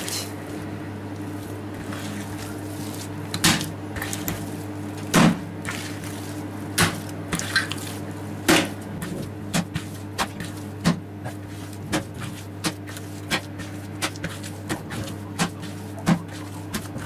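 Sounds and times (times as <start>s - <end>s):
steady low hum: 0.0s - 17.0s
meat mixture slapped onto metal tray: 6.8s - 7.1s.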